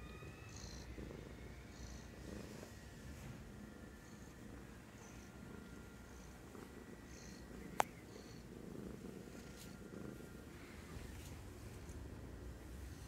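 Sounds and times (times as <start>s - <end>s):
cat purring: 0.0s - 13.0s.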